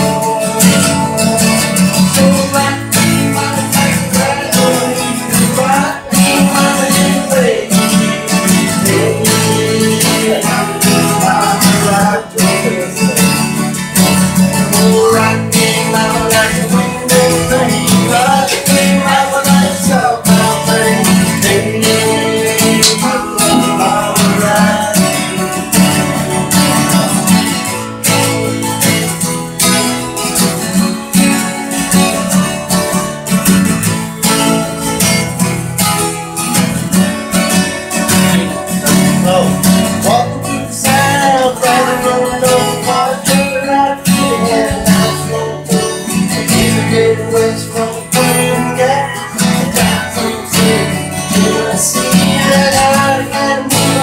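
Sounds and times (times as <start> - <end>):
acoustic guitars strumming: 0.0 - 54.0
harmonica playing: 20.7 - 27.2.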